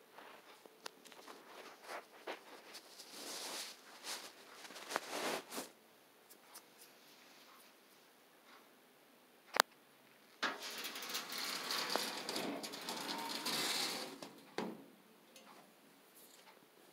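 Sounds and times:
sliding glass door rattling on track: 10.4 - 14.9.

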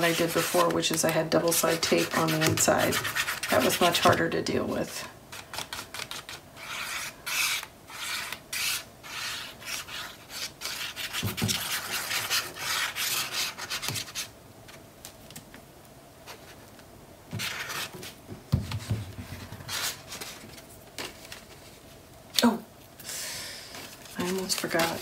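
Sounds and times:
rubbing and scraping on paper: 0.0 - 4.2, 5.3 - 14.3, 17.4 - 21.8, 23.7 - 25.0.

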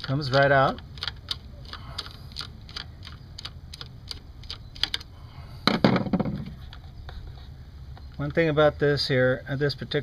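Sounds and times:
hand ratchet clicking: 0.0 - 5.1.

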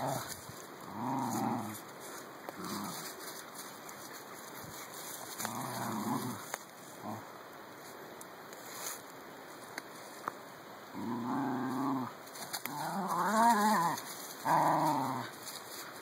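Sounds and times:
small dogs growling: 0.0 - 7.3, 10.9 - 15.6.

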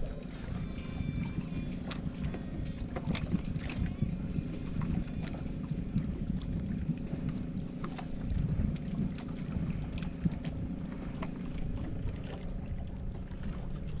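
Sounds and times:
water lapping against hull: 0.0 - 14.0
wind buffeting microphone: 0.0 - 14.0.

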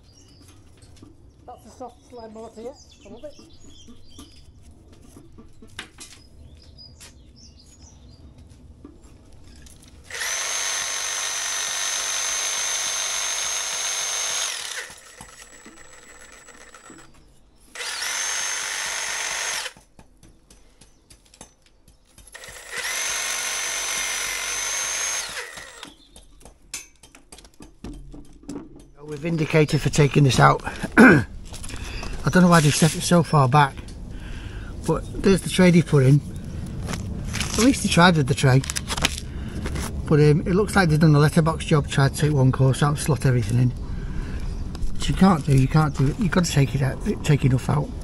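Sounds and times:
reciprocating saw cutting brick: 10.0 - 20.0, 22.2 - 26.0.

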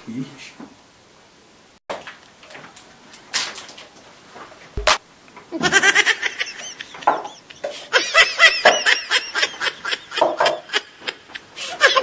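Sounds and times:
sharp knock: 4.8 - 5.0
person laughing: 5.5 - 12.0.

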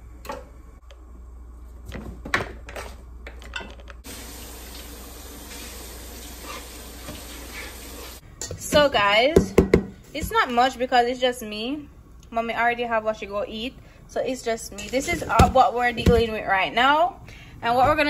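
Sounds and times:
tap water running into sink: 4.1 - 8.2.

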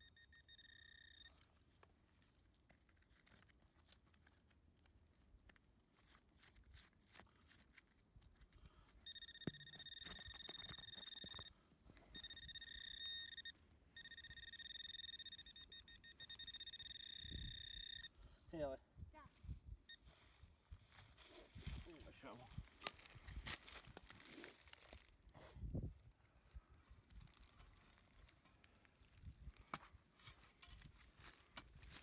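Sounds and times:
metal detector high tone: 0.0 - 1.4, 9.0 - 18.2.

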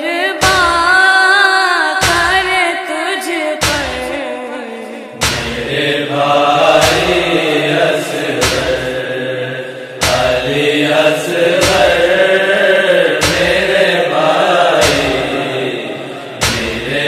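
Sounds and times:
boy chanting a lament: 0.0 - 17.0
heavy beat: 2.0 - 2.5, 5.2 - 17.0.

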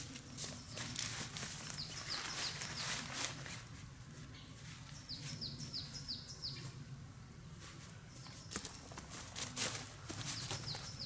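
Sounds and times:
songbird singing: 0.0 - 3.2, 4.3 - 7.0, 10.0 - 11.0
rustling: 0.0 - 5.4.

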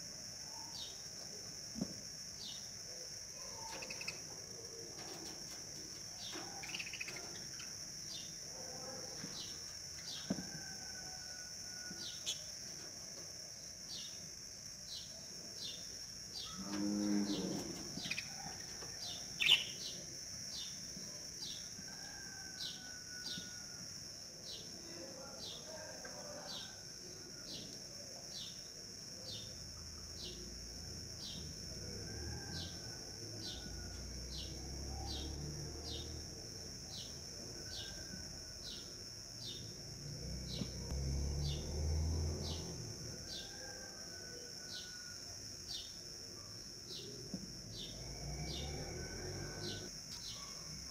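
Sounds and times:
insects buzzing: 0.0 - 50.9
cow mooing: 16.5 - 17.8.

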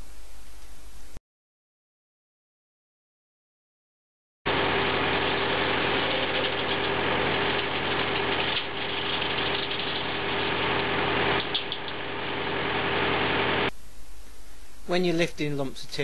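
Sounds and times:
circular saw running: 4.5 - 13.7
tractor engine: 4.5 - 13.7.

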